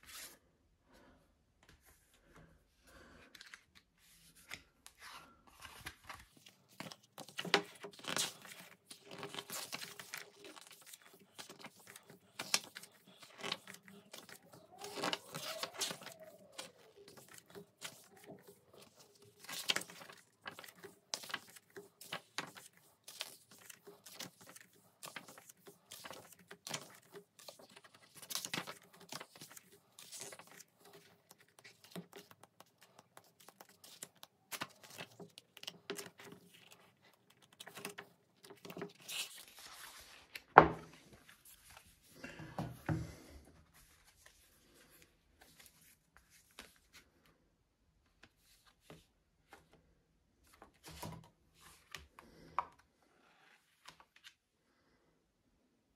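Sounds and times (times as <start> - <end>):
pages flicking and rustling: 4.4 - 40.5.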